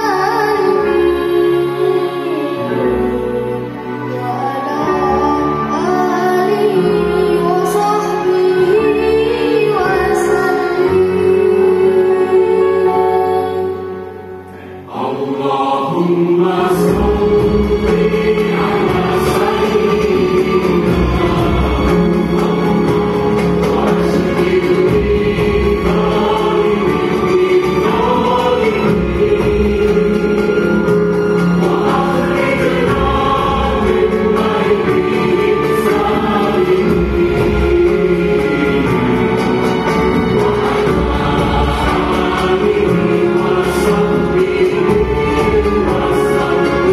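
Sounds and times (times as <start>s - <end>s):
orchestra with choir: 0.0s - 46.9s.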